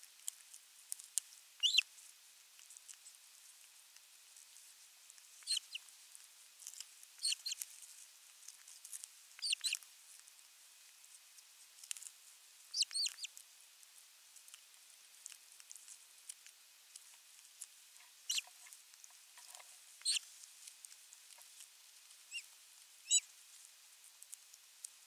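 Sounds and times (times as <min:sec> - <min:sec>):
high-pitched bird chirping calls: 0:01.6 - 0:01.8, 0:05.4 - 0:05.8, 0:07.2 - 0:07.6, 0:09.4 - 0:09.8, 0:12.7 - 0:13.3, 0:18.2 - 0:18.5, 0:22.3 - 0:23.2.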